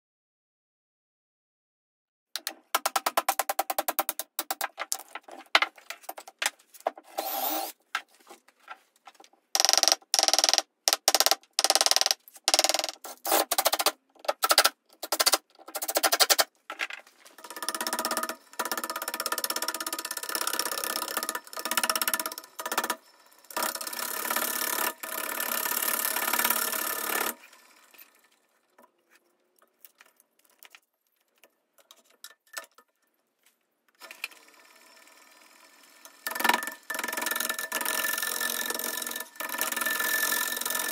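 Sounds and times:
woodworking power tools: 0:06.0 - 0:08.4, 0:17.2 - 0:29.2, 0:34.0 - 0:40.9
motor-driven tool running: 0:07.1 - 0:07.8, 0:17.4 - 0:27.7.

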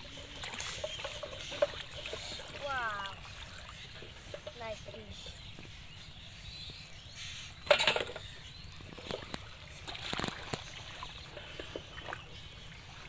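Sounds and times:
pond water splashing: 0:00.0 - 0:13.0.

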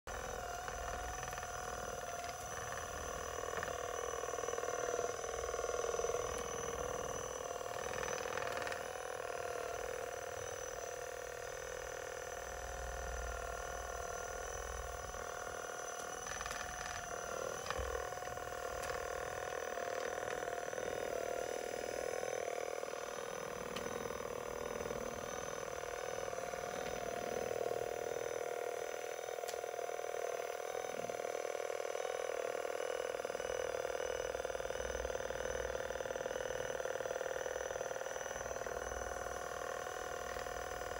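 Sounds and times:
massage gun motor humming: 0:00.1 - 0:40.9.

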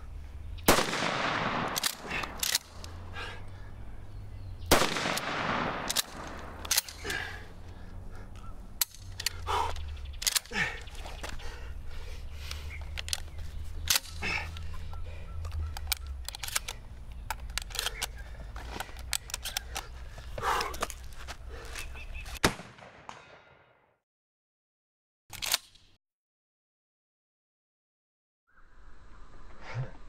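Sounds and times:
sharp bangs: 0:00.6 - 0:02.8, 0:04.7 - 0:07.0
shotgun slide clacking: 0:01.2 - 0:03.0, 0:05.0 - 0:07.1, 0:15.5 - 0:18.2, 0:25.3 - 0:25.9.

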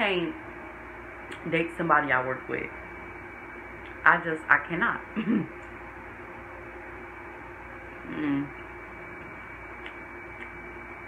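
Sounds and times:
faint electrical hum: 0:00.0 - 0:11.0
person murmuring: 0:08.0 - 0:08.6.

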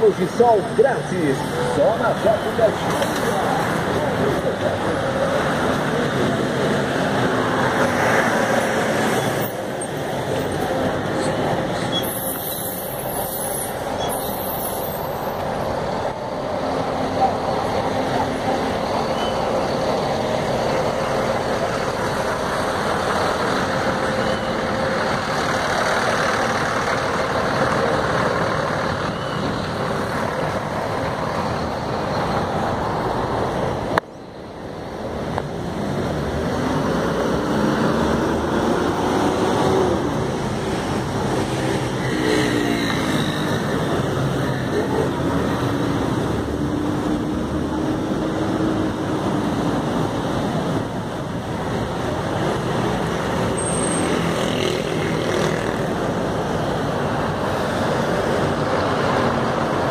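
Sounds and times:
buses and cars idling: 0:00.0 - 0:42.0.

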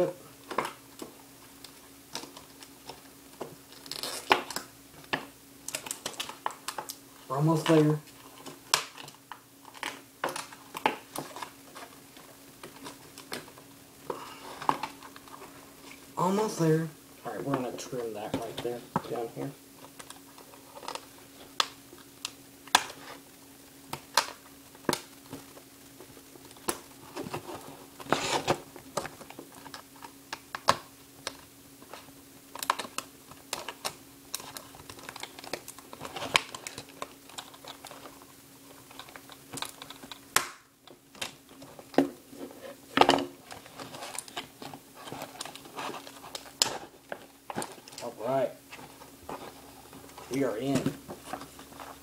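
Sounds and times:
faint steady hum: 0:00.0 - 0:52.0
plastic crinkling: 0:00.4 - 0:07.0, 0:23.9 - 0:52.0.

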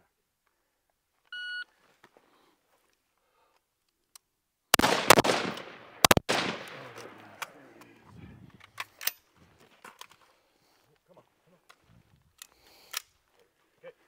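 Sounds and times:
rifle shots echoing: 0:04.8 - 0:07.6.

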